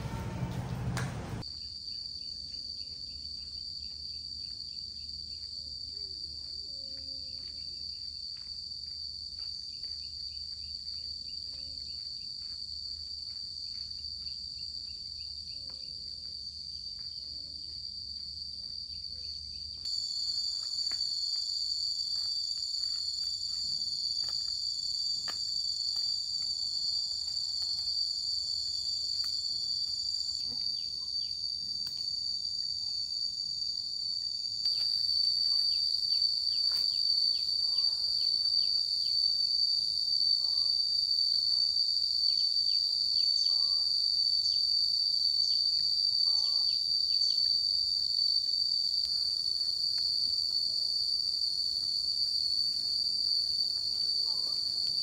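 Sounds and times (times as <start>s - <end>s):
high-pitched insect chorus: 1.4s - 55.0s.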